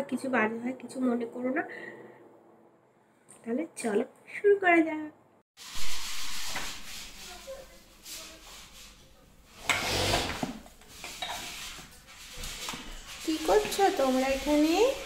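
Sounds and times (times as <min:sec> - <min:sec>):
plastic toys rubbing and knocking: 0:05.8 - 0:15.0.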